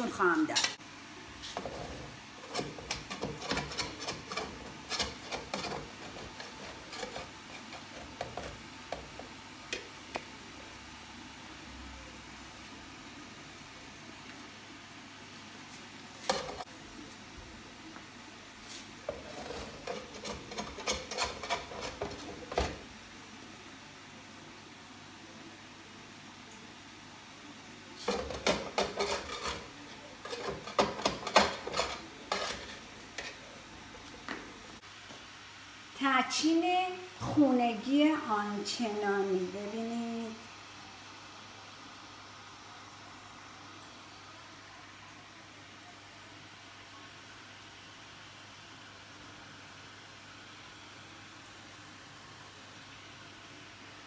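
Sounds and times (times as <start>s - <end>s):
metal spoon scraping a pot: 1.6s - 8.6s, 16.2s - 16.6s, 19.1s - 22.8s, 28.0s - 33.5s.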